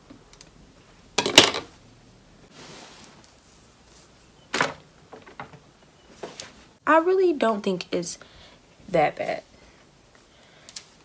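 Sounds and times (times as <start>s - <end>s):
soft rustle: 2.5s - 4.4s.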